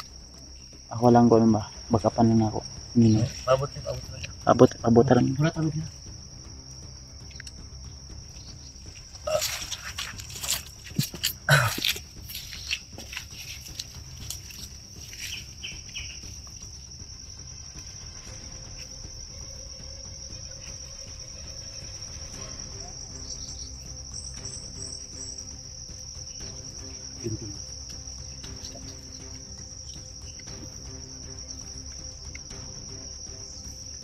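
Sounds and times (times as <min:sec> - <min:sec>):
insects trilling: 0:00.0 - 0:34.0.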